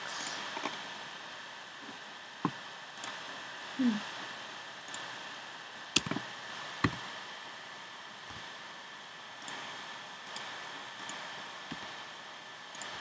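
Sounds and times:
steady hiss: 0.0s - 13.0s
keyboard and mouse clicks: 6.0s - 6.2s, 10.3s - 11.9s, 12.7s - 13.0s.

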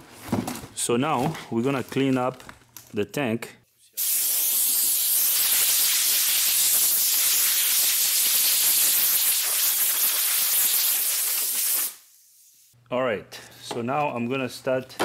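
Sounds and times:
air blow gun hissing: 4.0s - 12.8s.

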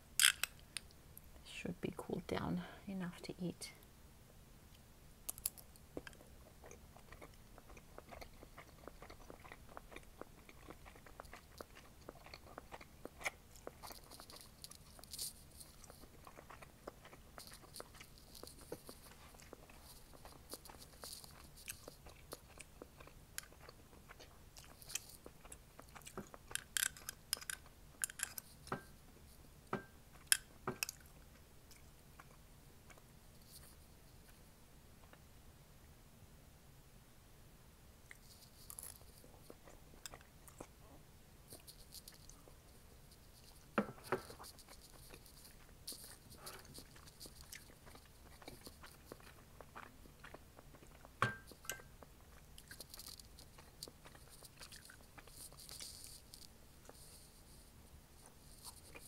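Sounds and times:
mouth chewing wet smacks: 5.3s - 28.8s, 43.5s - 56.2s.

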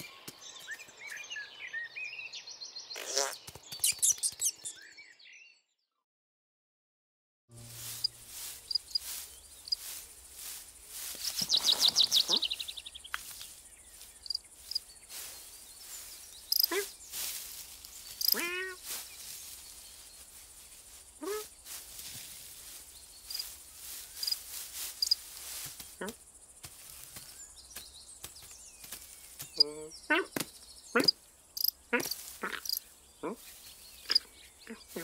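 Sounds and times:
birdsong: 0.0s - 6.0s, 7.6s - 35.0s
fast trill of bird chirps: 3.0s - 4.9s, 11.2s - 13.1s, 14.2s - 17.3s, 18.0s - 19.3s
short low bird calls: 11.2s - 14.4s, 15.1s - 19.8s, 29.4s - 35.0s.

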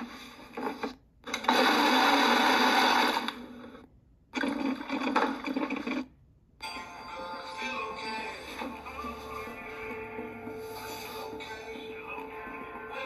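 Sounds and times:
blender motor running: 1.4s - 3.4s.

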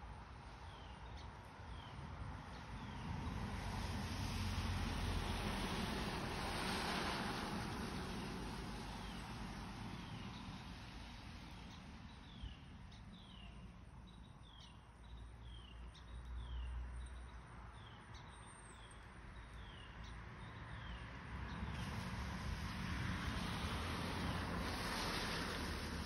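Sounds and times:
wind rumbling on microphone: 0.6s - 14.7s, 19.6s - 26.0s.

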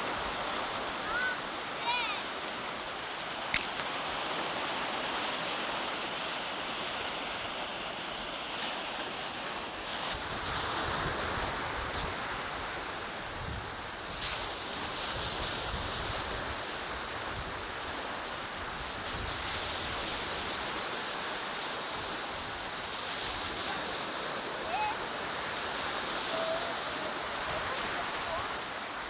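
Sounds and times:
ocean surf washing onto beach: 0.0s - 29.0s
wind on microphone: 9.8s - 21.1s.

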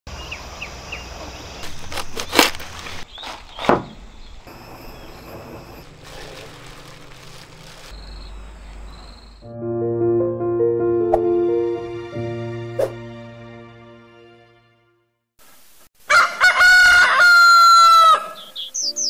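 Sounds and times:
bird chirps: 3.1s - 5.8s, 7.9s - 9.4s, 18.3s - 19.0s.

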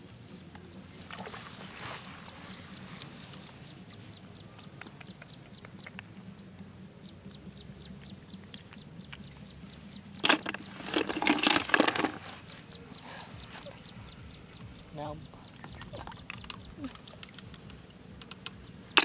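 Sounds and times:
snail shells knocking and clattering: 10.2s - 12.4s, 15.6s - 19.0s.

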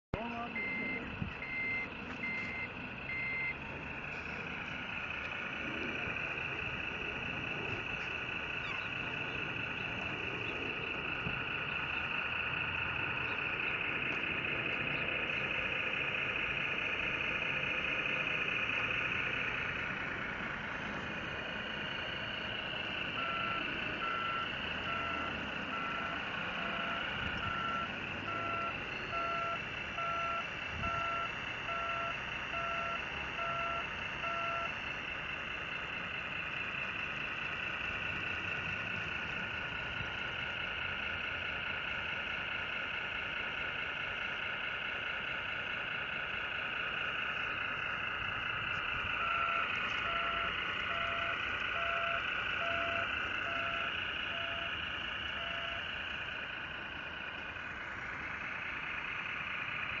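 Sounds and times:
higher beeps: 0.2s - 4.4s, 23.2s - 34.7s, 49.2s - 54.7s, 55.3s - 55.8s
reversing beeper: 0.2s - 40.0s, 46.8s - 60.0s
electric drive whine: 0.2s - 42.8s, 45.7s - 60.0s.

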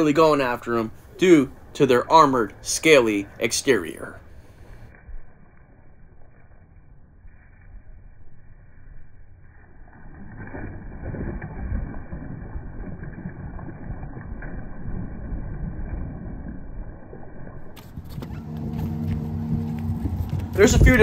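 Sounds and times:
net splashing on water: 9.9s - 20.0s.

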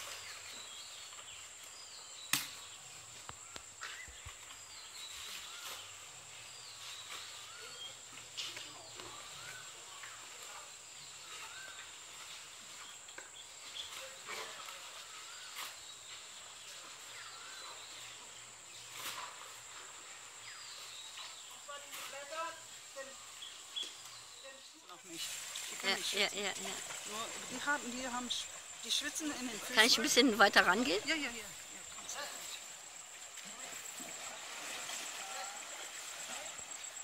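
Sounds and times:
small birds chirping: 20.4s - 33.1s
high insect drone: 24.3s - 37.0s.

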